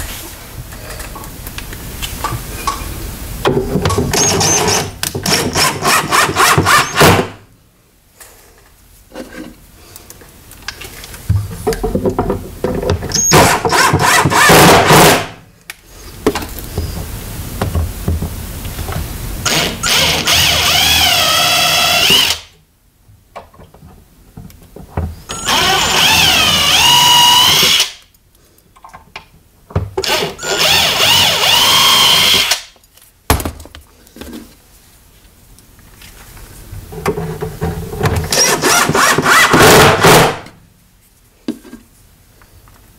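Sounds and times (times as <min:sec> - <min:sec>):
power drill driving screws: 0:04.1 - 0:07.4, 0:13.1 - 0:15.3, 0:19.4 - 0:22.5, 0:25.3 - 0:28.0, 0:30.0 - 0:32.7, 0:38.3 - 0:40.4.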